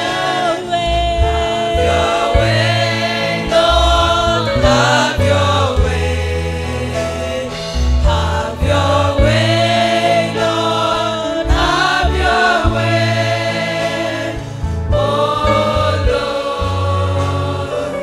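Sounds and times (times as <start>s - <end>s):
woman singing into microphone: 0.0s - 12.9s
sustained low instrumental chords: 0.0s - 18.0s.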